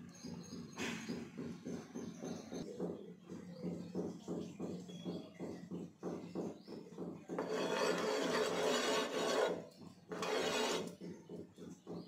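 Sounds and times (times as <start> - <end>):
steel spoon scraping pan: 7.4 - 11.0.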